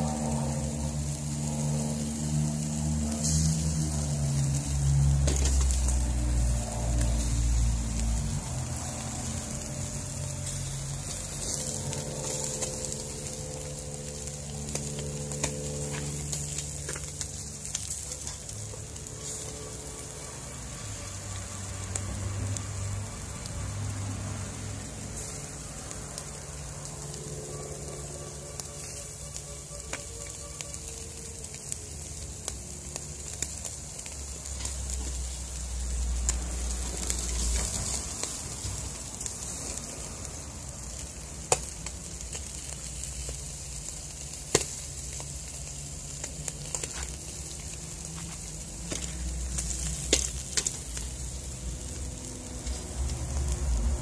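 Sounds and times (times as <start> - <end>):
low rumble: 0.0 - 30.4
fish sizzling on a grill: 0.0 - 54.0.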